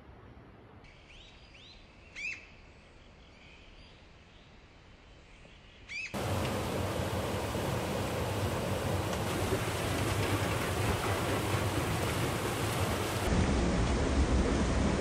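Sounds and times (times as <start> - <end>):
faint forest hush: 0.9 - 13.3
stream rushing: 6.2 - 15.0.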